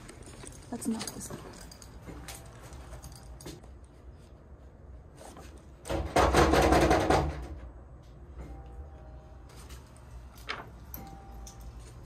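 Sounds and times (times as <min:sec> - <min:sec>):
knocking on door: 0:05.9 - 0:07.6.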